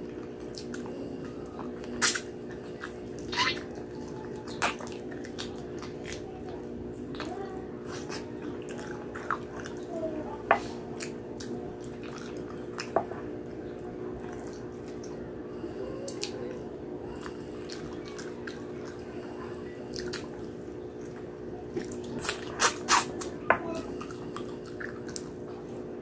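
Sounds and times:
wet chewing and lip smacking: 0.2 - 9.9, 17.1 - 19.1, 19.9 - 25.5.

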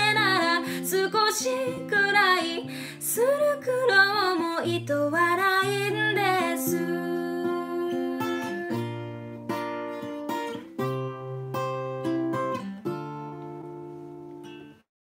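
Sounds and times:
acoustic guitar strummed chords: 4.6 - 14.8.

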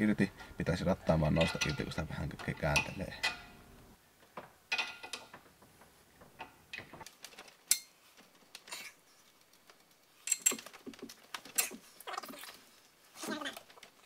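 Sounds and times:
metallic clicks and clinks: 9.3 - 11.7.

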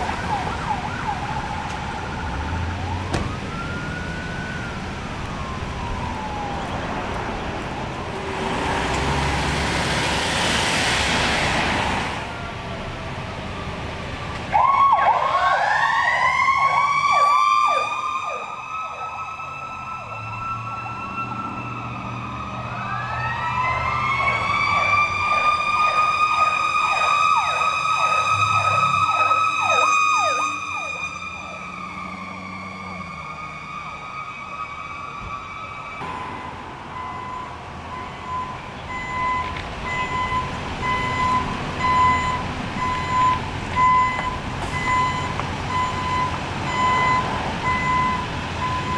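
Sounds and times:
emergency siren wailing: 0.0 - 48.9
reversing beeper: 36.0 - 48.9.

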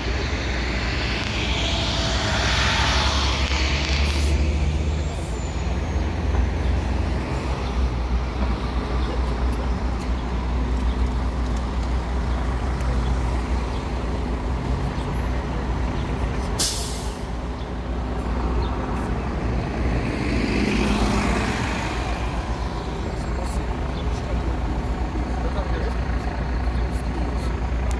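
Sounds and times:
bus and traffic engine rumble: 0.0 - 27.9
bus passing close by: 0.0 - 27.9
air brake hiss: 16.6 - 17.3.

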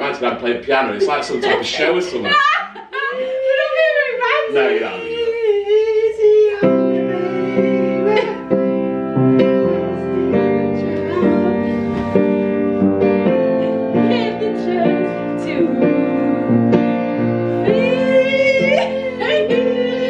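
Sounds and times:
person singing: 2.9 - 8.8, 9.7 - 12.2, 13.5 - 20.0
slow piano song: 3.4 - 20.0.

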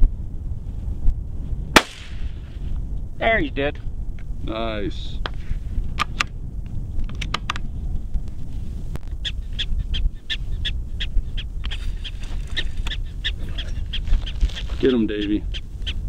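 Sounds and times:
wind rumble on microphone: 0.0 - 16.0
prairie dog alarm chirps: 9.1 - 16.0.

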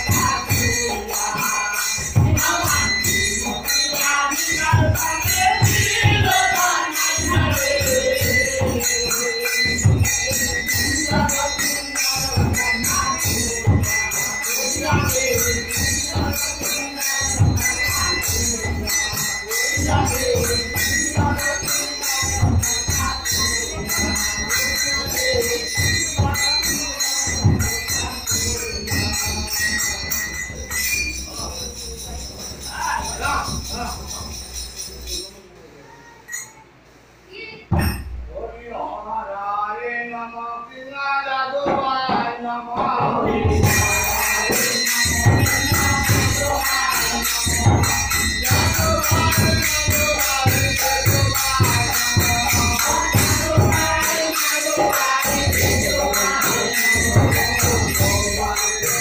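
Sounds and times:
voices chanting: 0.0 - 35.4, 41.7 - 59.0
ringing hand cymbals: 0.0 - 36.9, 37.6 - 38.6, 43.1 - 59.0.

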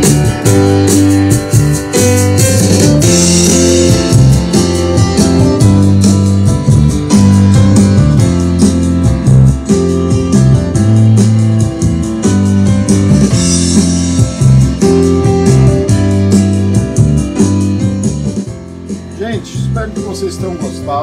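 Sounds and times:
band music over loudspeakers: 0.0 - 21.0.

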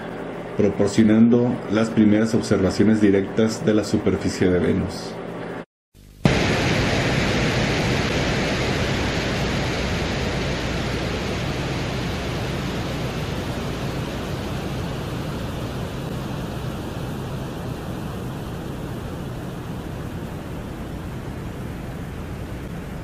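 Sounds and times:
wind-like rushing noise: 6.3 - 23.0.

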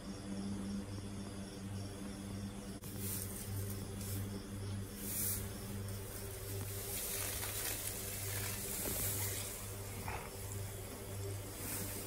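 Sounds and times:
low electrical hum: 0.0 - 12.0
straw bedding rustling: 2.8 - 12.0.

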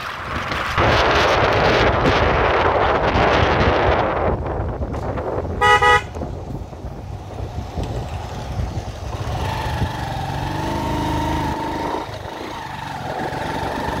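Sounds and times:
low road noise rumble: 0.0 - 14.0
motorcycle engine running: 5.5 - 14.0.

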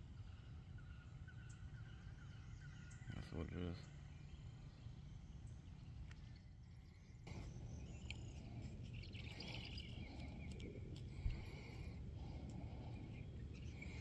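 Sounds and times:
faint chirping: 0.0 - 14.0
low steady rumble: 3.8 - 14.0.

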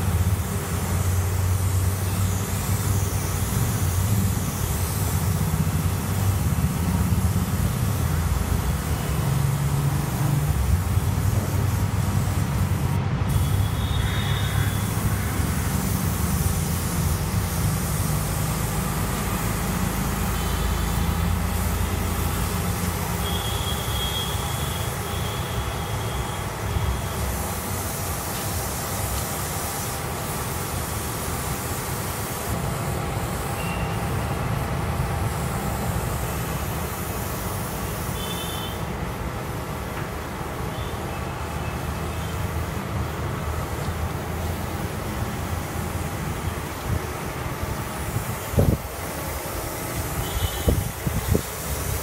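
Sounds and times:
machine humming with hiss: 0.0 - 52.0
short high-pitched tones: 33.6 - 34.1.

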